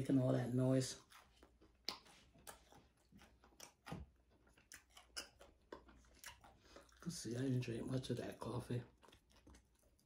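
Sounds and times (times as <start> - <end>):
mouth clicks from chewing: 1.1 - 7.1.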